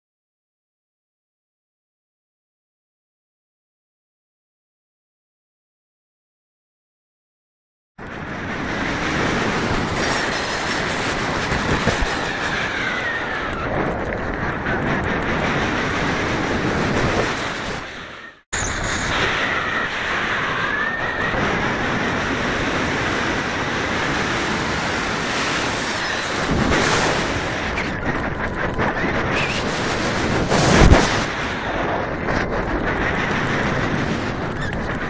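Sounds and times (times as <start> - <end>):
wind rushing over microphone: 8.0 - 35.0.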